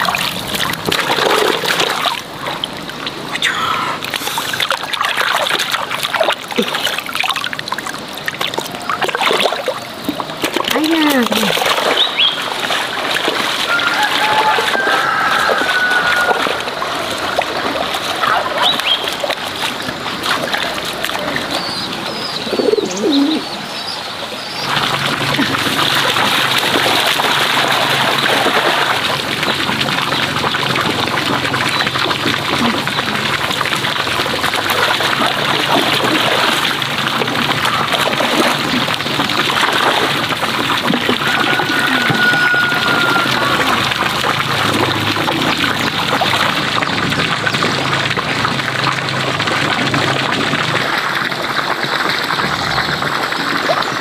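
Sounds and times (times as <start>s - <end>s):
pond water splashing: 0.0s - 54.0s
rush of water: 0.0s - 54.0s
bird calls: 3.3s - 4.6s, 11.8s - 12.5s, 18.2s - 19.2s, 21.2s - 24.7s.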